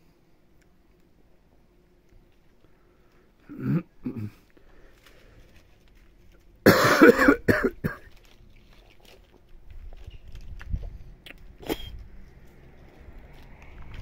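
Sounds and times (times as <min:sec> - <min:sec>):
man coughing: 0:03.5 - 0:04.4, 0:06.6 - 0:08.1.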